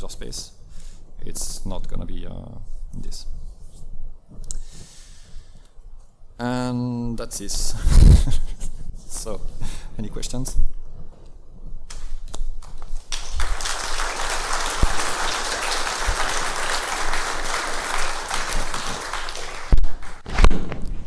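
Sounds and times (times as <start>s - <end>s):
audience applauding: 13.1s - 20.2s.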